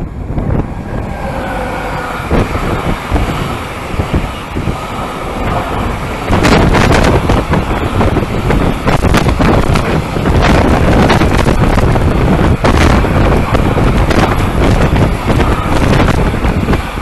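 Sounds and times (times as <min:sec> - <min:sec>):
freight train wagons rumbling: 0:00.0 - 0:17.0
locomotive whining: 0:00.0 - 0:17.0
wind buffeting microphone: 0:00.0 - 0:17.0.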